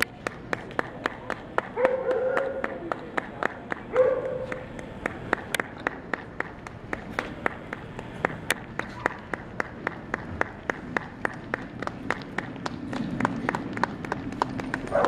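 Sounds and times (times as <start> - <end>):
spectators clapping rhythmically: 0.0 - 15.0.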